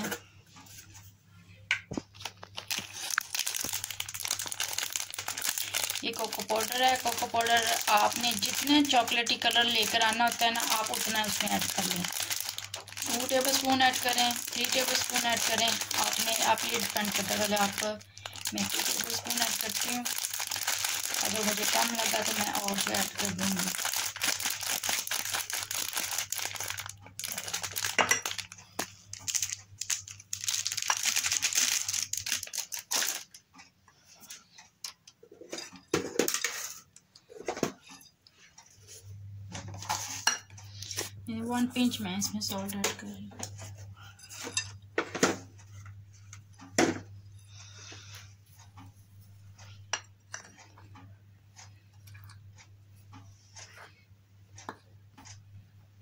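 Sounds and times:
plastic bag crinkling: 0:02.1 - 0:33.4.

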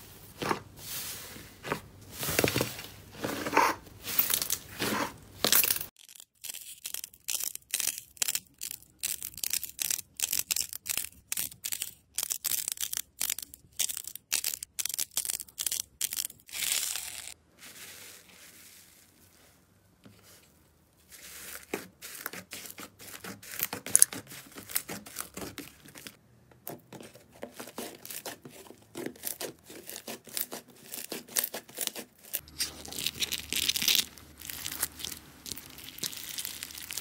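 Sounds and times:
clay balls crunching: 0:02.2 - 0:17.4, 0:27.4 - 0:37.0
slime squelching: 0:27.0 - 0:37.0.

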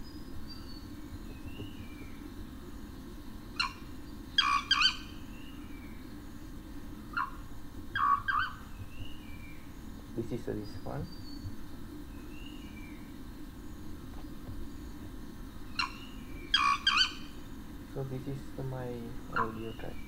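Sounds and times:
bird song sharp notes: 0:00.0 - 0:02.3, 0:18.9 - 0:20.0
steady low hum: 0:00.0 - 0:20.0.

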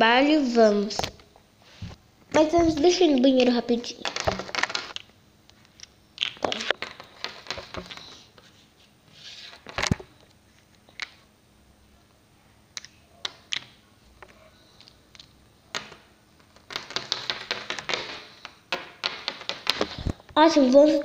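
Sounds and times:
plastic toys tapped on tabletop: 0:16.7 - 0:20.0.

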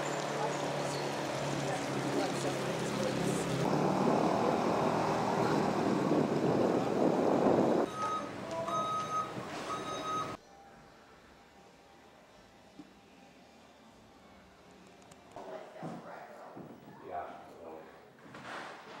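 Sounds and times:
vehicle running: 0:00.0 - 0:10.4
street noise: 0:00.0 - 0:16.6.

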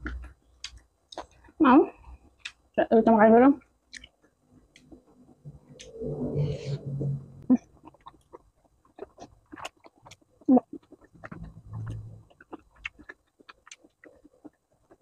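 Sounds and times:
person chewing with wet mouth sounds: 0:00.0 - 0:02.8, 0:03.8 - 0:06.5, 0:07.5 - 0:15.0
low closed-mouth hum: 0:04.6 - 0:13.1.

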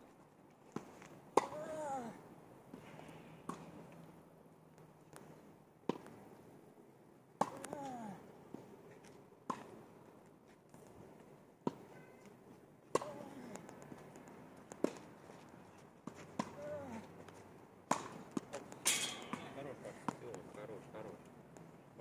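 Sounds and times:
tennis racket hitting ball: 0:00.8 - 0:01.7, 0:12.9 - 0:13.2, 0:16.0 - 0:16.8, 0:17.9 - 0:20.2
person grunting: 0:01.5 - 0:02.2, 0:07.6 - 0:08.2, 0:13.0 - 0:13.6, 0:16.6 - 0:17.1.

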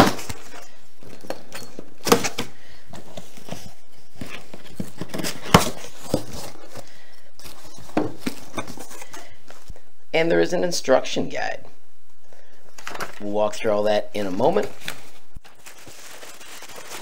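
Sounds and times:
cardboard rustling and scraping: 0:00.0 - 0:09.7, 0:14.3 - 0:17.0.

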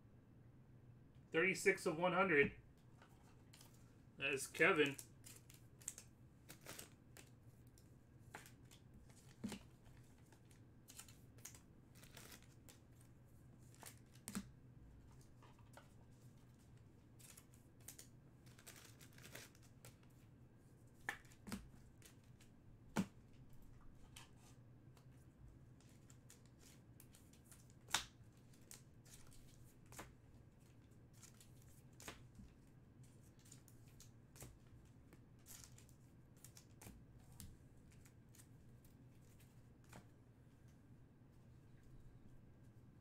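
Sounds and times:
card packs crinkling and tearing: 0:04.5 - 0:07.4, 0:10.4 - 0:12.8, 0:17.2 - 0:20.0.

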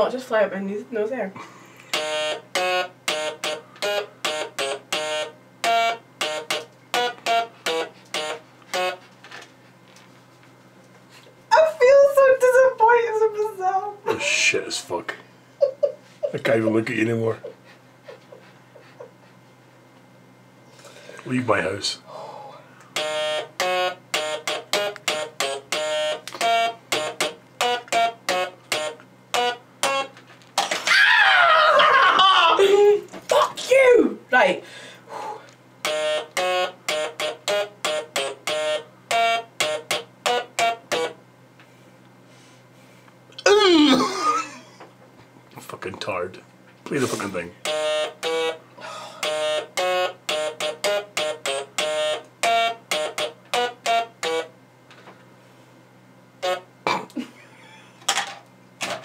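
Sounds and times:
stylophone buzzy notes: 0:01.9 - 0:09.1, 0:23.0 - 0:30.2, 0:35.8 - 0:41.2, 0:49.2 - 0:54.5, 0:56.4 - 0:56.7.

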